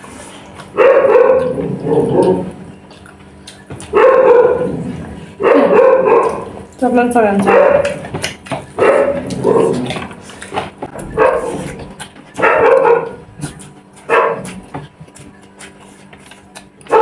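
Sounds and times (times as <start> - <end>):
dog barking: 0.7 - 1.6, 3.8 - 4.8, 5.4 - 6.5, 7.4 - 8.0, 8.8 - 9.8, 11.1 - 13.3, 14.0 - 14.6.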